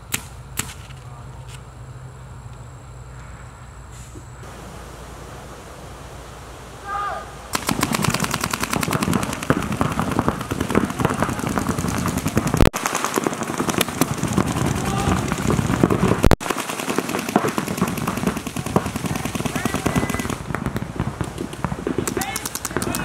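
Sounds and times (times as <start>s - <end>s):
paintball markers firing rapidly: 7.6s - 23.0s.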